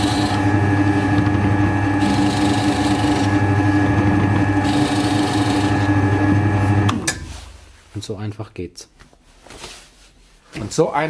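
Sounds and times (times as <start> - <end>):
drill press motor hum: 0.0 - 7.2
drill bit cutting wood hiss: 2.0 - 3.4, 4.6 - 5.8.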